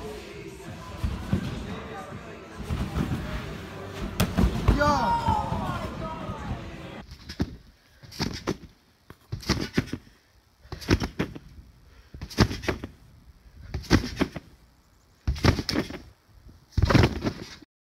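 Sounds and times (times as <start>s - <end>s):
trampoline mat thumping: 1.0s - 1.8s, 2.6s - 6.3s, 9.3s - 10.0s, 10.7s - 11.4s, 12.2s - 13.0s, 13.7s - 14.5s, 15.2s - 16.1s, 16.7s - 17.6s.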